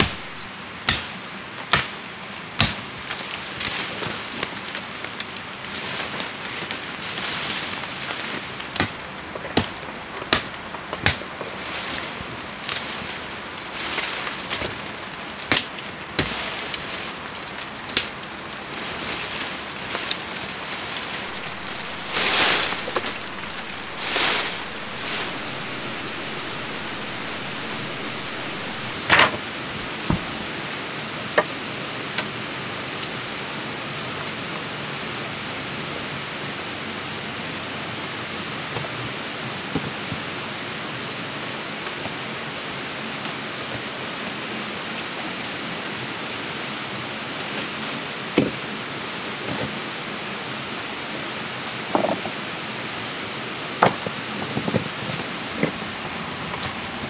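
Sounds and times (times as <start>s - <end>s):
stream water running: 0.0s - 0.5s, 20.7s - 31.2s.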